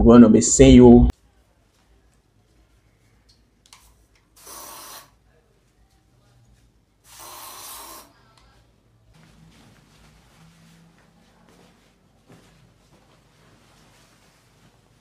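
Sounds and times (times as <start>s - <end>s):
aerosol can spraying: 4.4s - 5.1s, 7.1s - 8.1s.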